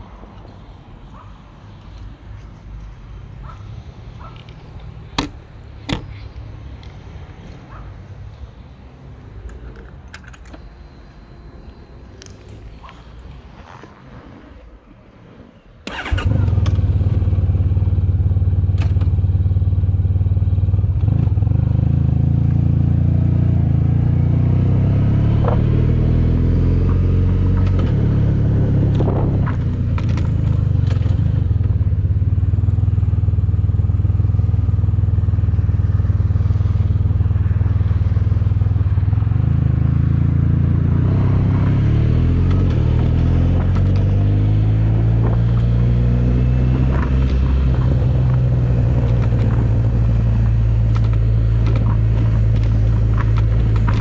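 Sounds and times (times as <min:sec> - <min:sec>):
motorcycle engine accelerating: 0:15.9 - 0:54.0.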